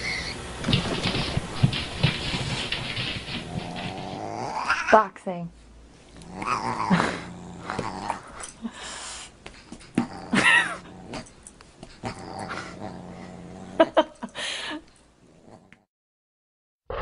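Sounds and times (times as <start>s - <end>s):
dog growling: 0.8s - 5.0s, 6.1s - 8.6s, 9.9s - 14.2s, 15.2s - 15.9s.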